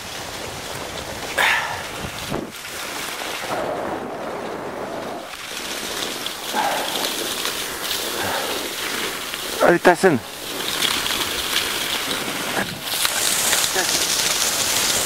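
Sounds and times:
skis hissing over snow: 0.0s - 3.6s, 5.2s - 15.0s
wind on microphone: 0.0s - 9.6s.

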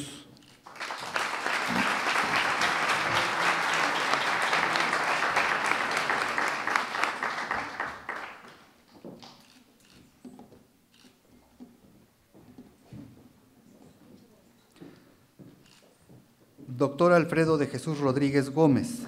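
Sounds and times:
audience applause: 0.6s - 8.7s.

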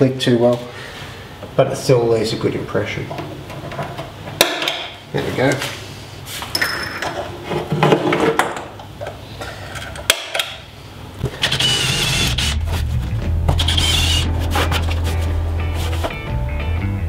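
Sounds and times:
cordless drill boring into wood: 11.4s - 12.6s, 13.6s - 14.2s.

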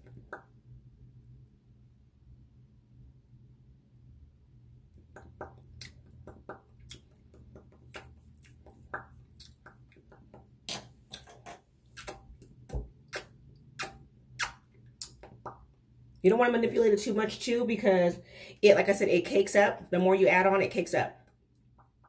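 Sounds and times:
lips smacking: 5.2s - 11.4s, 12.0s - 15.5s.

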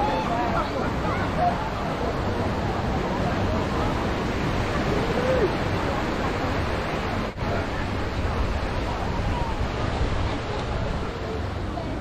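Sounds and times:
beach surf: 0.0s - 12.0s
wind: 0.0s - 12.0s.

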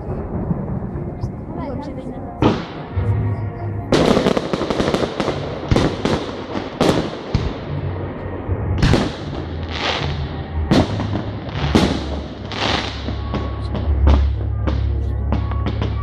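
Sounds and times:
crackling firework bangs: 2.4s - 3.1s, 3.9s - 7.9s, 8.8s - 16.0s.

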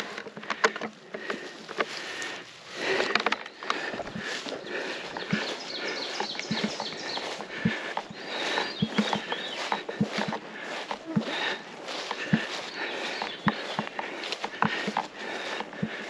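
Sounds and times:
twigs cracking: 0.0s - 16.0s
footsteps through leaf litter: 3.6s - 16.0s.

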